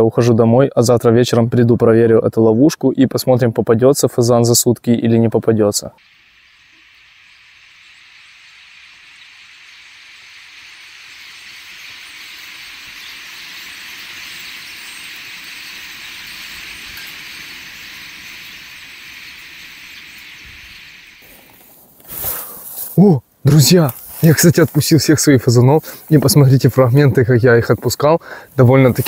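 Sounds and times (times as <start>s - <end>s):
flock of birds rushing overhead: 6.2s - 22.6s.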